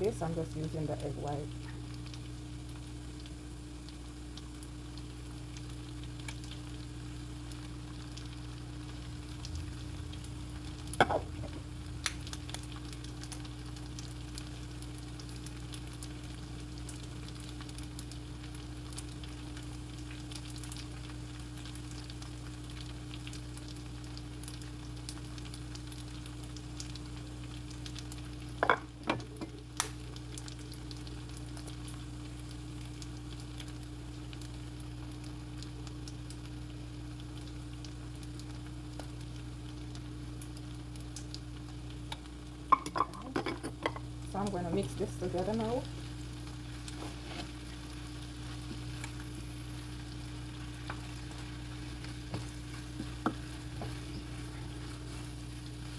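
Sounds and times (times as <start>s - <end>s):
vegetables sizzling in a pan: 0.0s - 55.9s
low hum: 6.4s - 14.2s.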